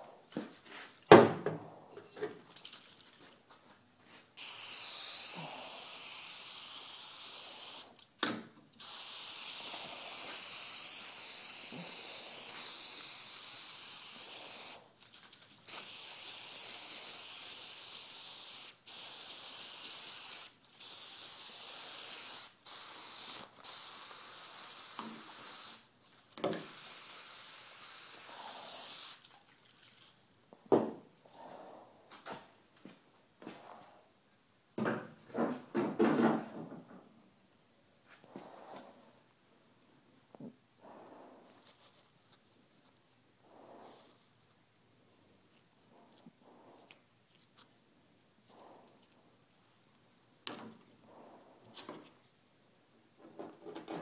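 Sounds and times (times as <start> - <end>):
spray paint can hissing: 4.4 - 8.0, 8.8 - 14.8, 15.6 - 25.9, 26.6 - 29.2.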